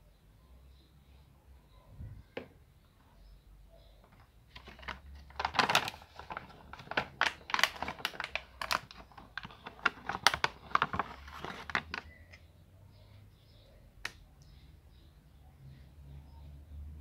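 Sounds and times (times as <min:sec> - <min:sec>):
plastic packaging crackling: 0:04.1 - 0:12.3.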